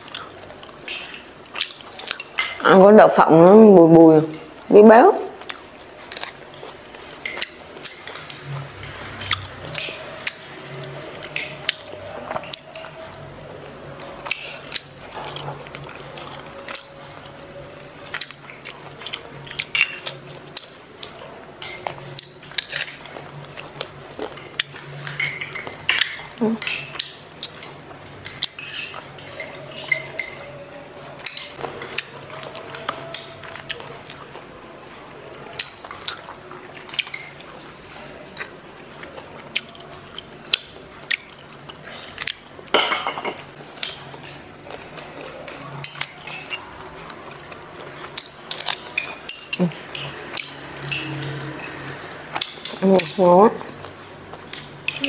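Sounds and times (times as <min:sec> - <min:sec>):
spoons clinking on ceramic bowls: 0:00.8 - 0:02.8, 0:24.3 - 0:33.4, 0:42.7 - 0:43.6, 0:48.8 - 0:51.8.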